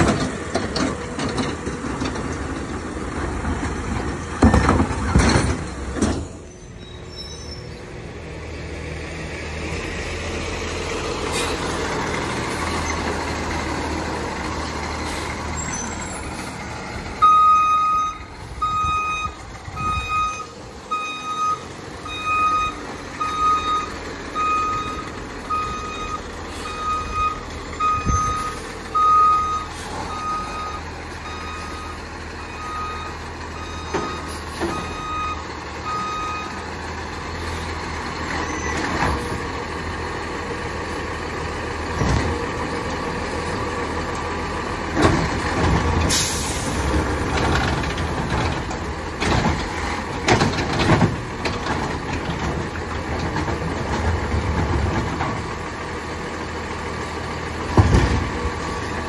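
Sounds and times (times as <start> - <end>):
garbage truck engine running: 0.0 - 59.0
truck reverse alarm beeping: 17.2 - 36.7.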